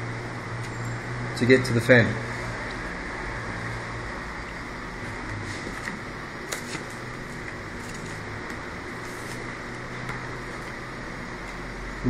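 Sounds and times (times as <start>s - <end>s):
steady background hum: 0.0s - 12.0s
plastic laptop being handled: 5.6s - 10.8s.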